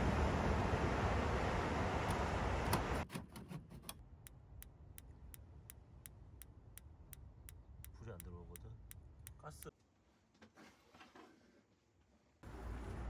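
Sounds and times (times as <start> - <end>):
wind: 0.0 - 13.0.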